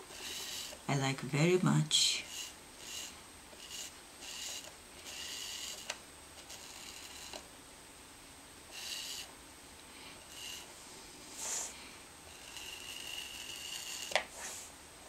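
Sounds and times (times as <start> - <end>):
styrofoam cutter scratching: 0.0 - 0.8.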